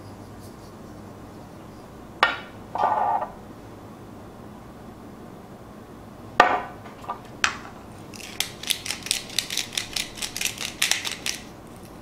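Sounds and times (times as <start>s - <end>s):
sharp knocks: 2.2s - 3.0s, 6.4s - 7.7s
pepper grinder grinding: 8.0s - 12.0s.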